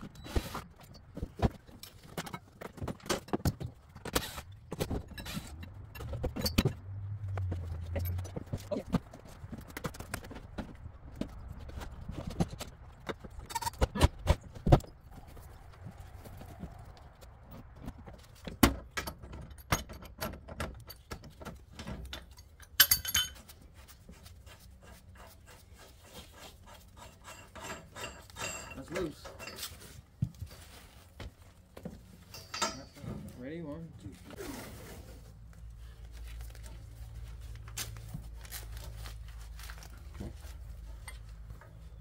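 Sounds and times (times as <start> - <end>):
metal clanks on pipe: 27.0 - 29.7, 32.3 - 33.1.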